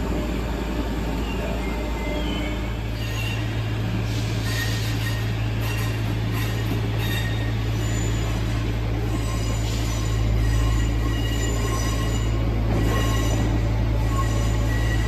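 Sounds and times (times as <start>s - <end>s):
rail noise: 0.0s - 15.0s
wheels squealing: 4.4s - 15.0s.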